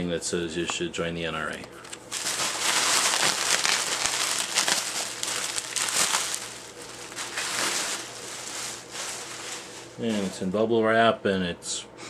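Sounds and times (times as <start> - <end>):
bubble wrap crinkling: 1.8 - 10.6.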